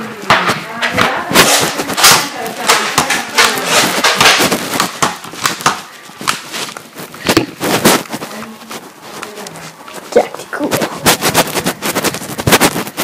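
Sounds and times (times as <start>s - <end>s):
toy blaster clacks and thumps: 0.9s - 6.5s.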